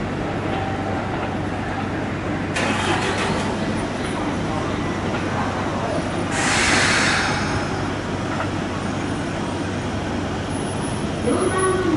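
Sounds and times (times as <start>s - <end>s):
train wheels on rails: 0.0s - 11.9s
rushing hiss: 6.3s - 8.0s.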